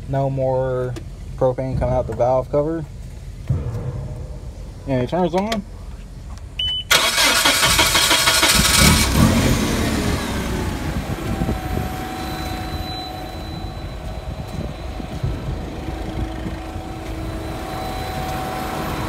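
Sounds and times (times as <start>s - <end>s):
forklift engine idling: 6.2s - 19.0s
forklift engine starter cranking: 6.6s - 9.5s.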